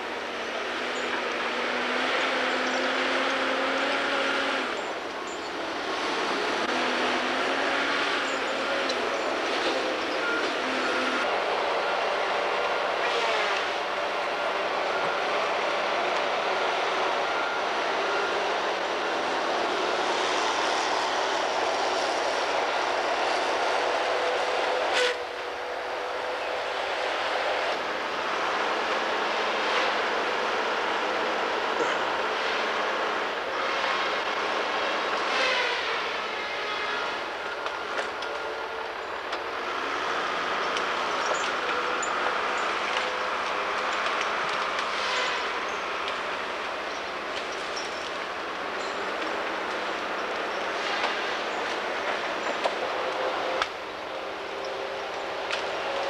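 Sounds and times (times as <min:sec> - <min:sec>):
diesel engine working hard: 0:00.0 - 0:56.0.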